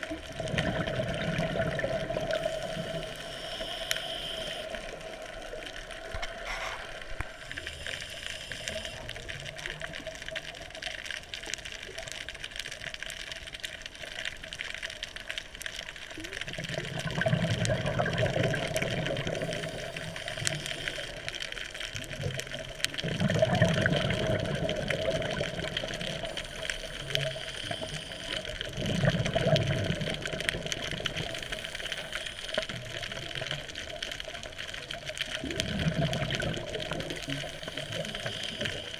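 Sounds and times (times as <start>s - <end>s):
exhaled bubbles gurgling: 0.0s - 38.9s
steady hiss: 1.7s - 10.7s, 18.4s - 22.0s, 24.4s - 28.8s, 30.0s - 35.0s, 36.2s - 38.9s
diver breathing through regulator: 2.4s - 5.0s, 6.1s - 9.1s, 26.3s - 28.5s, 37.6s - 38.9s.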